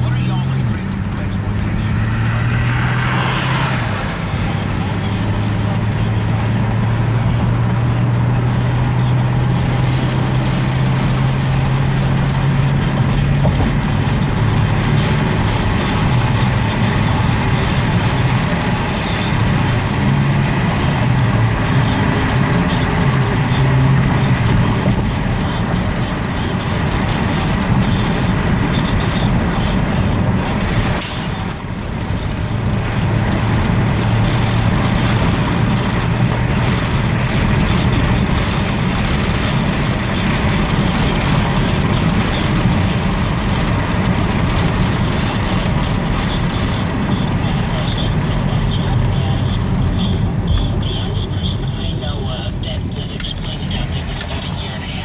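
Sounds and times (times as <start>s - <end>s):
car engine hum: 0.0s - 55.0s
road noise: 0.0s - 55.0s
short hiss: 31.0s - 31.4s.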